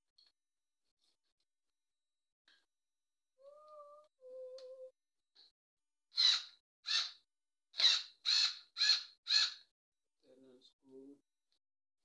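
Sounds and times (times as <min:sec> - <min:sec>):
bird harsh cawing: 0:07.8 - 0:09.7.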